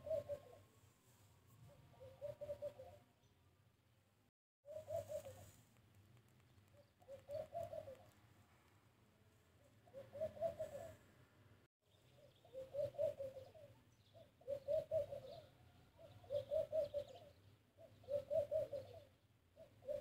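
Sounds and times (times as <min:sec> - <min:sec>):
dove cooing: 0:00.0 - 0:00.8, 0:01.6 - 0:03.1, 0:04.6 - 0:05.7, 0:06.7 - 0:08.3, 0:09.7 - 0:11.1, 0:12.1 - 0:20.0.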